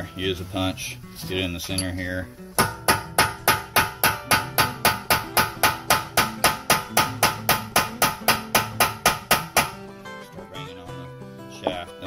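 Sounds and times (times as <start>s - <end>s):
hammer striking steel punch: 2.6s - 9.8s.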